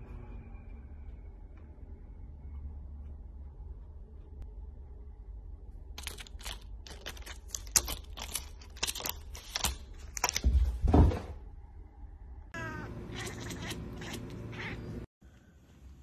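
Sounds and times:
plastic crinkling and crackling: 6.0 - 10.5.

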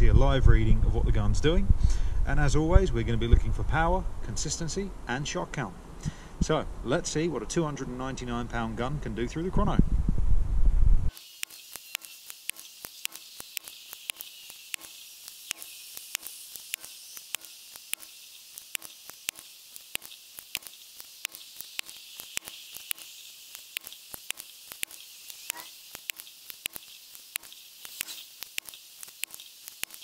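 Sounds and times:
steady high hiss: 11.1 - 30.0.

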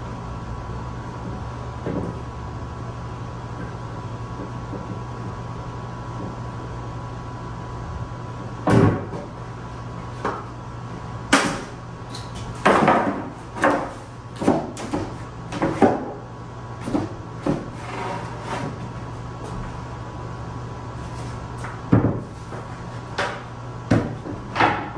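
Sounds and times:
steady low hum: 0.0 - 24.9
sharp knocks and clatters: 12.6 - 16.1.

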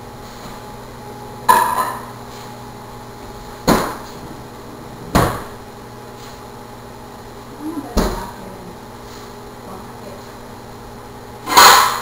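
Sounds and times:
dull kitchen bangs: 5.1 - 5.6, 11.5 - 12.0.

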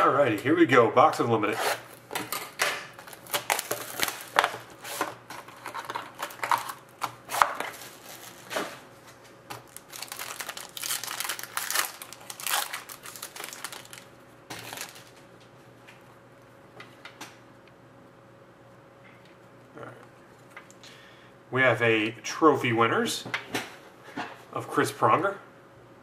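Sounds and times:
plastic wrap and foil crinkling: 2.9 - 15.3.

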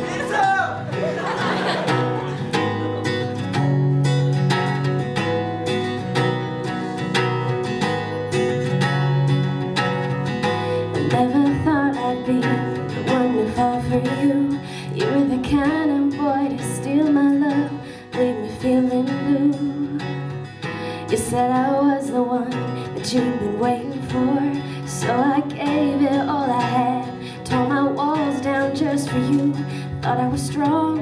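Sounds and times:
acoustic guitar: 0.0 - 31.0
woman singing: 10.8 - 31.0.

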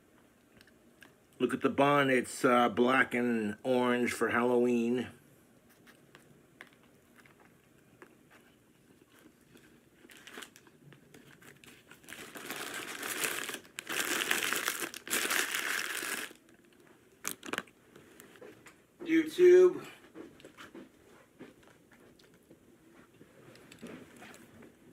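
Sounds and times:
paper wrapper crinkling: 9.0 - 17.8.

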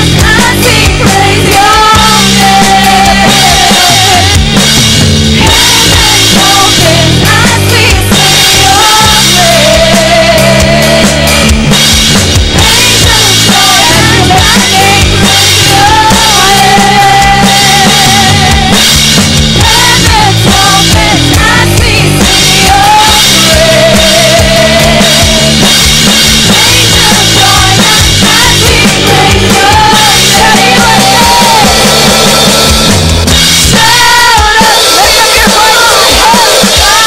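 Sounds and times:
woman singing into microphone: 0.0 - 4.6, 5.4 - 11.7, 12.6 - 18.8, 19.6 - 25.5, 26.5 - 32.0, 33.7 - 37.0
worship band playing: 0.0 - 37.0.

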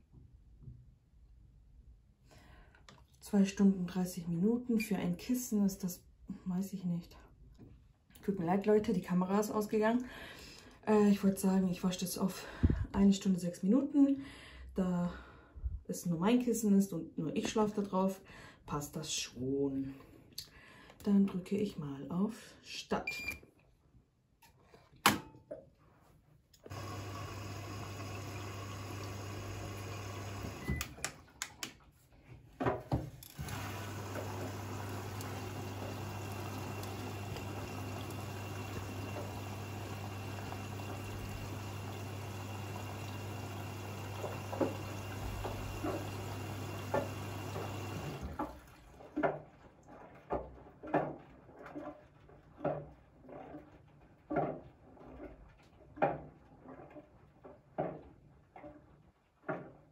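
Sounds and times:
water inlet valve humming: 26.6 - 31.1, 33.2 - 48.4
water filling drum: 26.7 - 30.8, 33.3 - 51.2
water sloshing in drum: 33.9 - 59.8.

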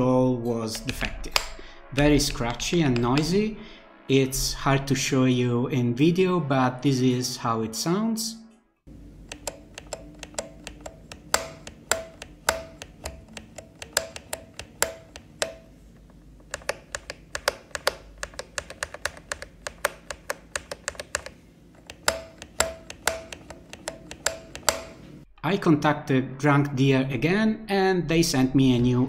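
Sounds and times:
clean keyboard key clicks: 9.2 - 15.7, 16.4 - 25.1.

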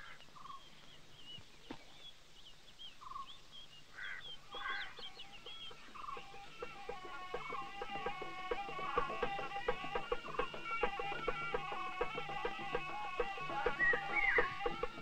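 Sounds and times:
rasping bird calls: 0.0 - 0.8, 3.0 - 15.0
birds chirping: 0.0 - 15.0
plucked-string music: 4.4 - 15.0.

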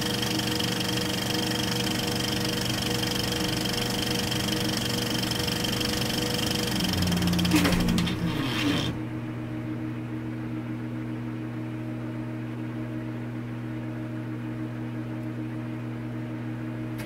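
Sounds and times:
low drone of held tones: 5.7 - 12.0
song's final chord: 6.7 - 10.5.

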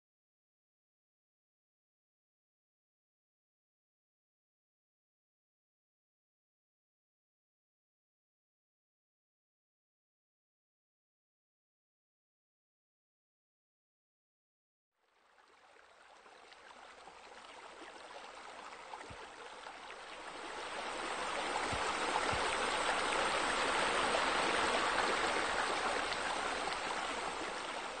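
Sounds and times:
water rushing and splashing: 15.6 - 28.0.

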